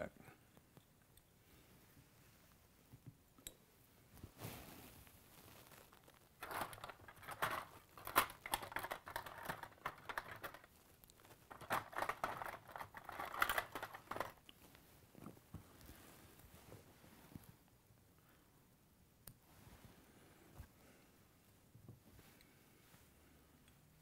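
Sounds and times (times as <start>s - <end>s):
plastic packaging crinkling: 5.3s - 14.5s.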